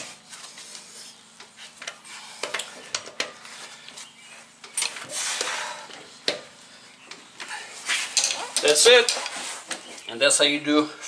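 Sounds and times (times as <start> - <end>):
rustling: 7.4 - 10.1.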